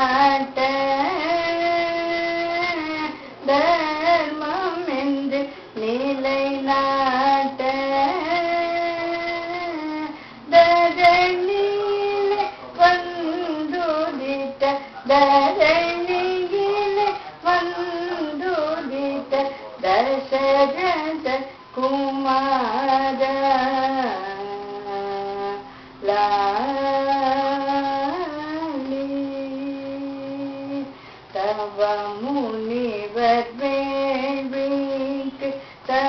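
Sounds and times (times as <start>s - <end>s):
elderly woman singing: 0.0s - 36.0s.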